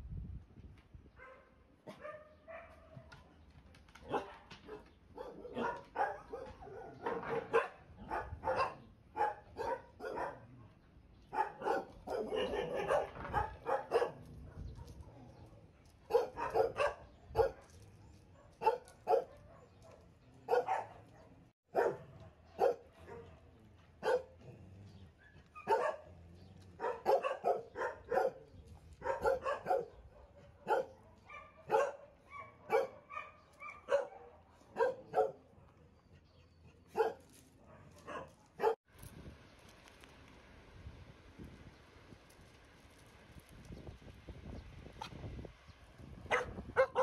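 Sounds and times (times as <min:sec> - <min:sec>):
dogs barking: 0:01.2 - 0:03.1, 0:04.0 - 0:35.8, 0:36.9 - 0:38.8, 0:46.2 - 0:47.0.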